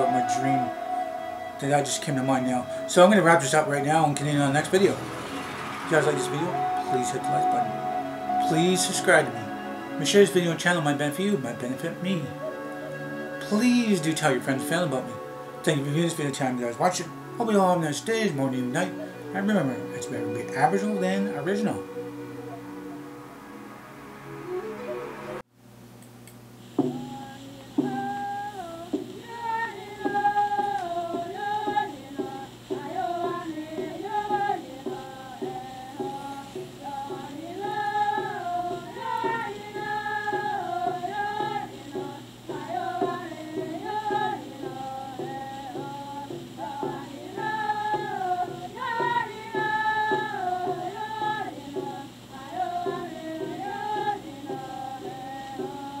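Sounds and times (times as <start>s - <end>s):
high voices singing: 0.0s - 25.4s, 26.8s - 56.0s
steady low hum: 25.6s - 56.0s.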